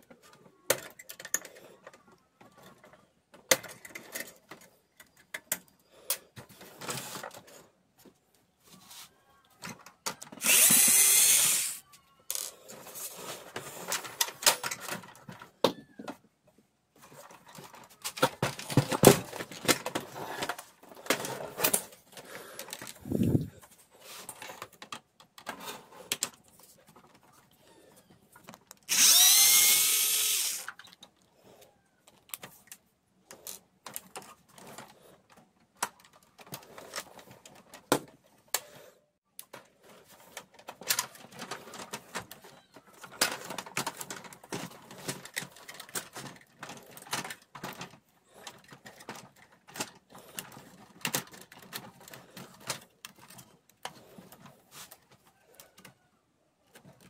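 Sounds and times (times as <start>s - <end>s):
electric screwdriver running: 10.4s - 11.8s, 28.9s - 30.7s.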